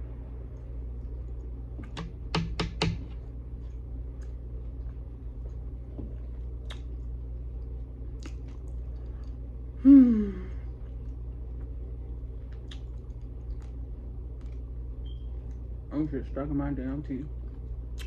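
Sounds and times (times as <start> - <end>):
steady low hum: 0.0 - 18.0
wet chewing smacks and clicks: 3.2 - 9.4, 11.0 - 15.7.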